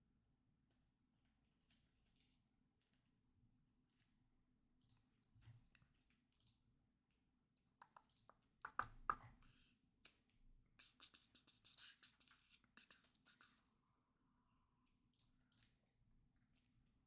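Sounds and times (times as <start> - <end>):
keyboard clicking and tapping: 7.8 - 9.4.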